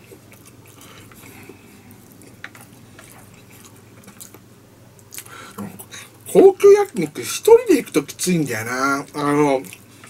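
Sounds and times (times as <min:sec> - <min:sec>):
soft chewing: 0:00.0 - 0:10.0.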